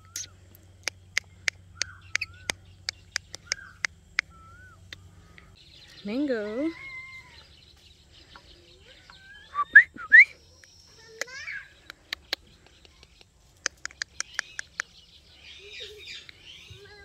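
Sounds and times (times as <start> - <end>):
parakeet clicks: 0.8 - 4.3, 11.2 - 14.9
parakeet chirp: 1.8 - 5.5
soft parakeet chatter: 10.4 - 17.0.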